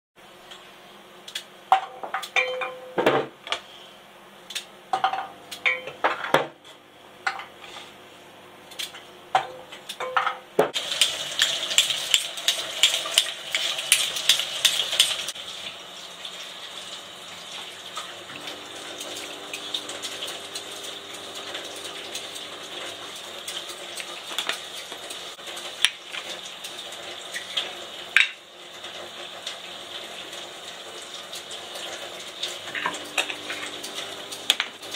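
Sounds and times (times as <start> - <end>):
bowl and utensils clinking: 1.7 - 2.9, 5.0 - 6.4
tap water running: 10.6 - 34.9.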